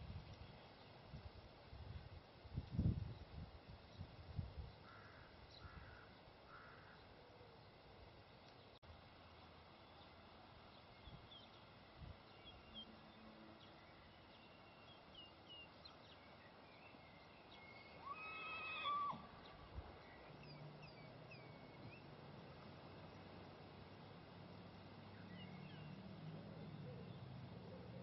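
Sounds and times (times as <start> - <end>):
faint bird chirps: 12.3 - 22.2, 24.8 - 28.0
high animal call: 17.6 - 19.8.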